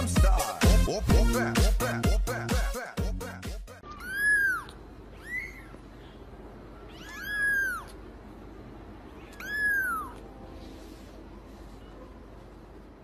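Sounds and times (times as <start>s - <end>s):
kitten meowing: 3.8s - 5.8s, 6.8s - 8.0s, 9.2s - 10.3s.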